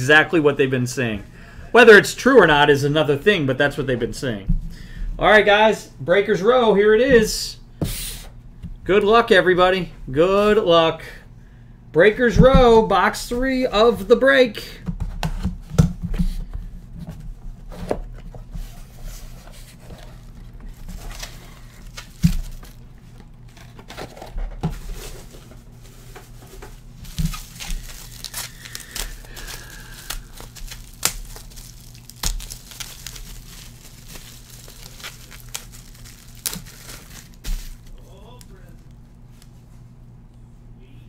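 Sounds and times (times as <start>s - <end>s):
bubble wrap crinkling: 18.5s - 39.6s.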